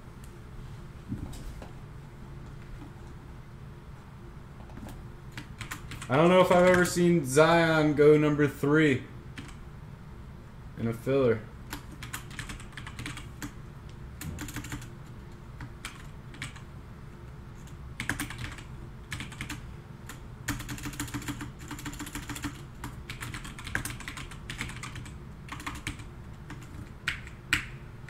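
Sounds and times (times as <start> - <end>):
typing on computer keyboard: 5.3 - 6.8, 9.4 - 9.6, 11.7 - 13.6, 14.3 - 14.9, 15.6 - 16.6, 17.6 - 27.7.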